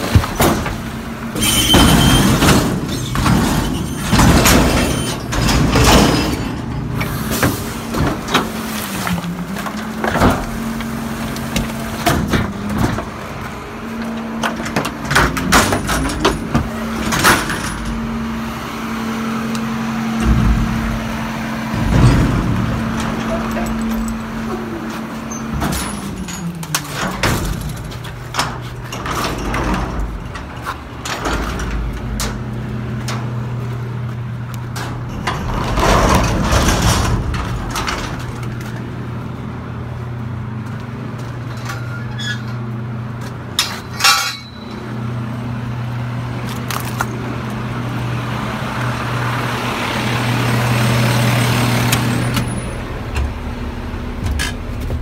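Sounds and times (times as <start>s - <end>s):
metallic clanks and knocks: 1.5s - 8.6s, 43.2s - 44.8s.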